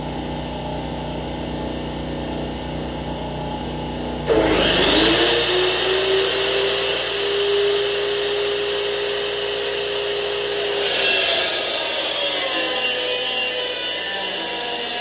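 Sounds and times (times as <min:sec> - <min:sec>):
chop saw cutting steel: 0:04.3 - 0:15.0.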